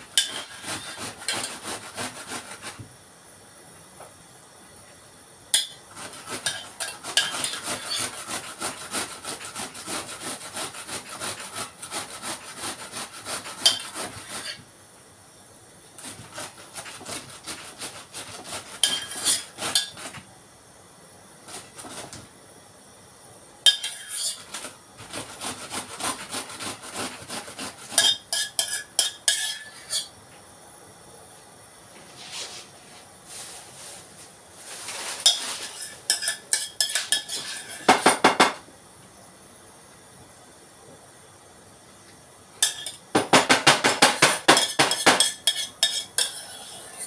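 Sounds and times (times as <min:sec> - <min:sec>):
cabbage grated on box grater: 0:00.1 - 0:02.8, 0:05.9 - 0:14.6, 0:16.0 - 0:20.2, 0:21.5 - 0:22.2, 0:23.8 - 0:30.1, 0:34.6 - 0:38.0, 0:44.0 - 0:47.0.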